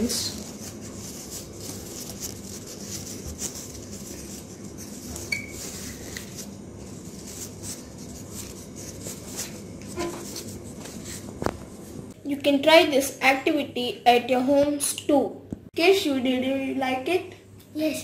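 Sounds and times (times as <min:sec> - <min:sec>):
paper rustling and rubbing: 0:00.0 - 0:12.2.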